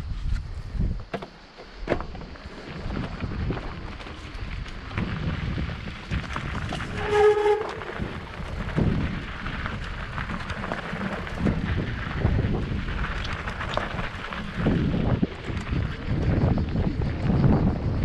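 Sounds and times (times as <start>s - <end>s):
wind buffeting microphone: 0.0s - 1.1s, 2.0s - 18.0s
bike rattling over stones: 0.1s - 18.0s
tyres crunching on loose rock: 1.1s - 16.5s
brief high squeal: 6.9s - 7.9s.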